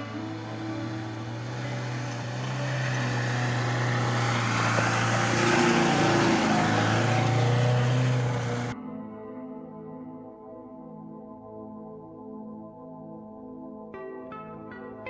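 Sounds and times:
car engine and tyre noise: 0.0 - 8.8
background music: 0.0 - 15.0.

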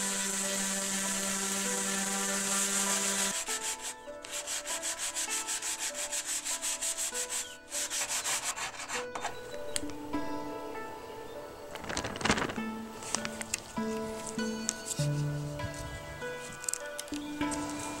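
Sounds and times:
orbital sander on wood: 0.0 - 9.0
hand rasp scraping wood: 0.0 - 9.4.

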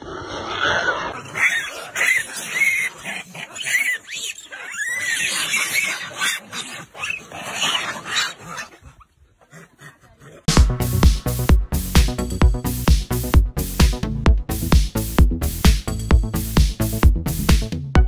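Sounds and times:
monkeys squealing and screaming: 0.5 - 9.9.

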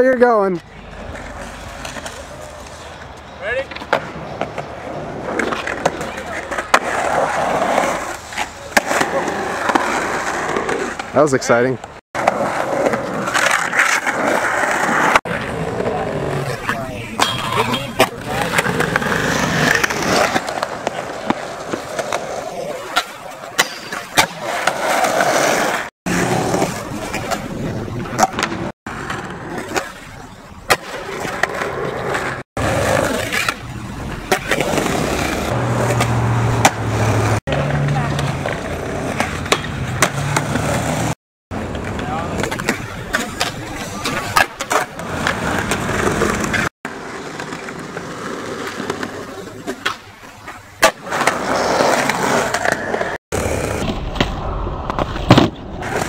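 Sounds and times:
skateboard wheels rolling on concrete: 0.0 - 56.0
skateboard grinding on concrete ledge: 3.9 - 11.1, 12.2 - 56.0
skateboard clacking on ground: 12.2 - 30.1.

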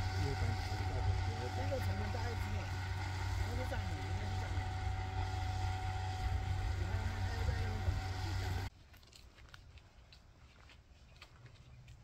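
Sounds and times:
low engine hum: 0.0 - 8.7.

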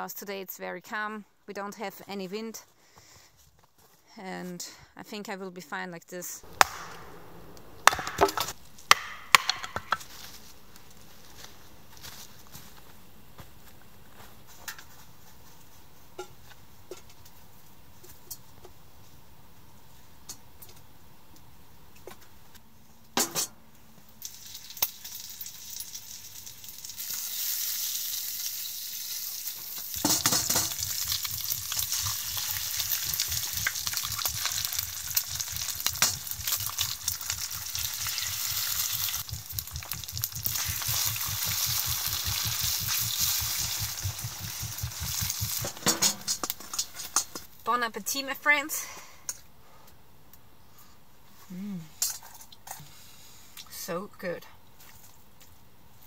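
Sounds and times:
sharp knock: 6.5 - 9.8
bacon and egg sizzling: 24.2 - 47.2.

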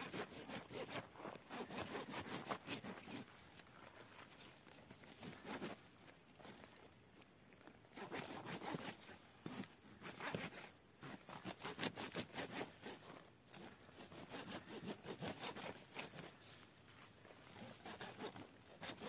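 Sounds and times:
hand tool rasping scrapes: 0.0 - 4.4, 8.0 - 19.0
dry twigs crackling: 1.2 - 7.7.

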